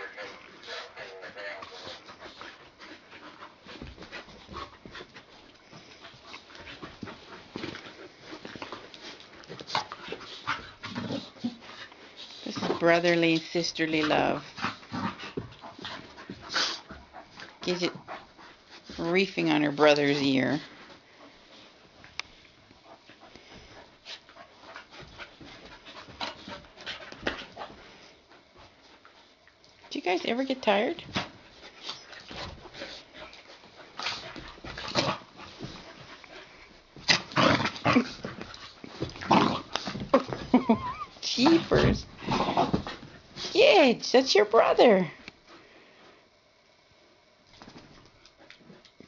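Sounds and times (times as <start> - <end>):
puppies panting: 0.0 - 21.6
puppies scuffling: 29.9 - 43.6.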